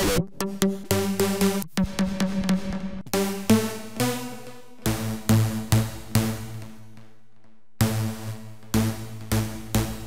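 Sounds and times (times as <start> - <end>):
electronic dance music: 0.0 - 4.4.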